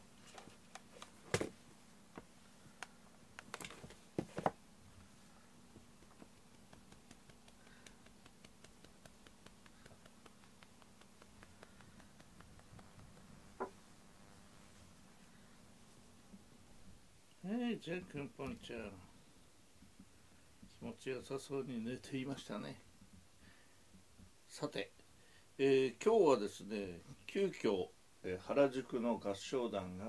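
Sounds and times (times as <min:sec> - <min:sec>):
hand scratching cat fur: 0:05.8 - 0:13.6.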